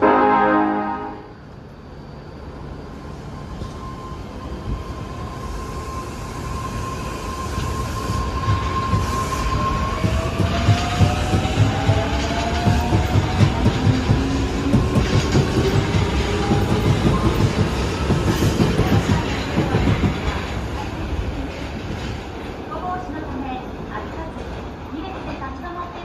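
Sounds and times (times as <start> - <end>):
train horn blast: 0.0 - 1.4.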